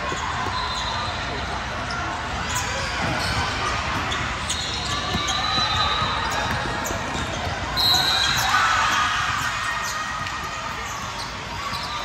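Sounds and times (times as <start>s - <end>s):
voices in a hall: 0.0s - 12.0s
basketball bouncing on court: 3.0s - 7.7s.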